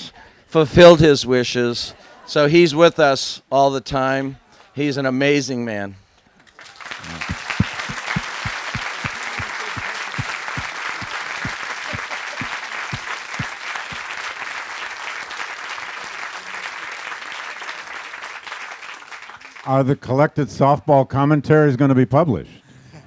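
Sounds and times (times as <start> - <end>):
audience applauding: 6.6 - 19.7
close hand clapping: 6.6 - 19.7.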